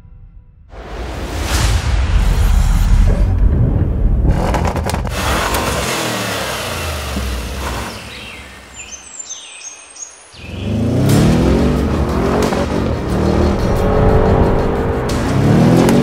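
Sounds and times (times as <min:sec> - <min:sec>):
car accelerating: 0:04.2 - 0:09.0, 0:10.4 - 0:16.0
car engine running loud and low: 0:04.2 - 0:09.0, 0:10.5 - 0:16.0
birds chirping: 0:07.5 - 0:11.6.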